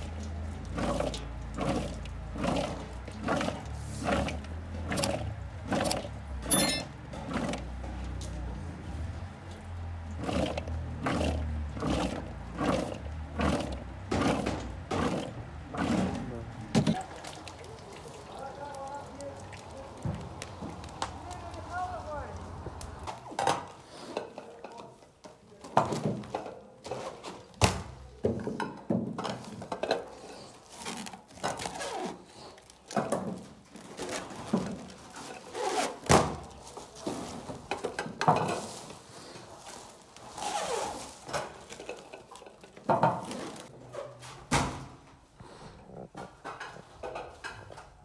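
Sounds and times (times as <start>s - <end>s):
cans and trays being handled: 32.9s - 44.6s.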